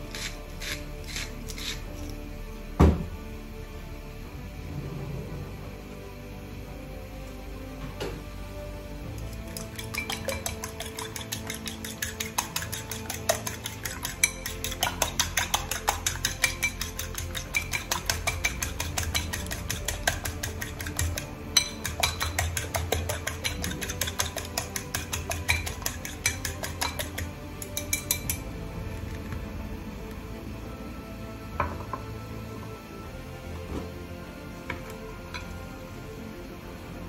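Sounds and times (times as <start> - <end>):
fork beating eggs in a bowl: 0.0 - 2.2, 9.1 - 29.2.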